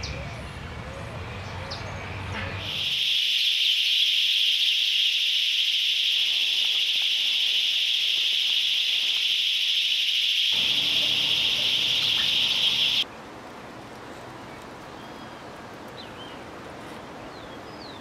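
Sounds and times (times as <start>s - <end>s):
high-pitched insect buzz: 2.6s - 13.0s.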